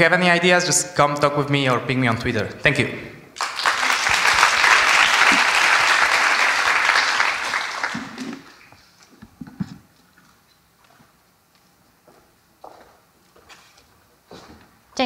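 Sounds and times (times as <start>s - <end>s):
audience applauding: 3.4s - 8.8s.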